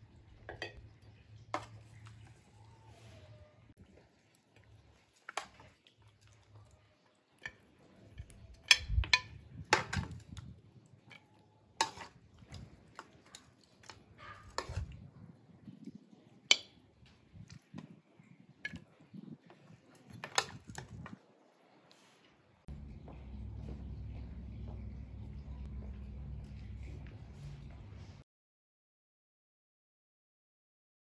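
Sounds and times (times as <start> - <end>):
metal spoon scraping a pot: 11.8 - 15.1.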